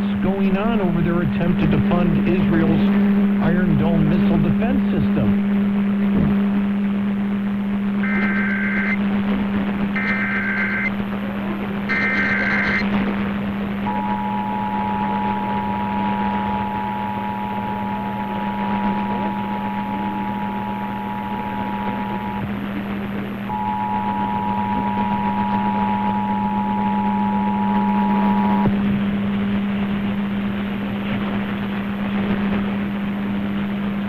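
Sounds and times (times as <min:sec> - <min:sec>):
radio hum and static: 0:00.0 - 0:34.0
data burst: 0:08.0 - 0:09.0, 0:10.0 - 0:10.9, 0:11.9 - 0:12.9
two-tone attention signal: 0:08.0 - 0:09.0, 0:10.0 - 0:10.9, 0:11.9 - 0:12.8, 0:13.9 - 0:22.4, 0:23.5 - 0:28.7.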